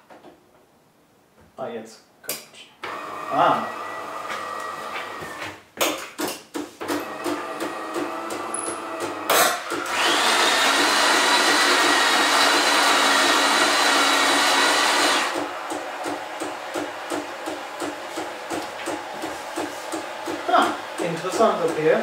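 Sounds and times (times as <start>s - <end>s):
espresso machine clicking and pulsing: 7.0s - 22.0s.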